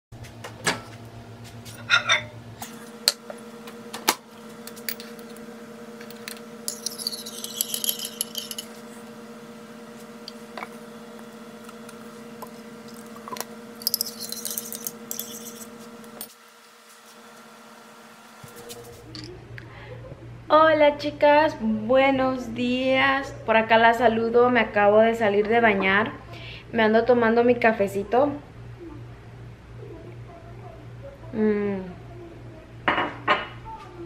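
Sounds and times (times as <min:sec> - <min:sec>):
microwave oven humming: 0:00.2 - 0:34.0
spoon clinking against mug: 0:06.7 - 0:08.8, 0:13.8 - 0:15.7.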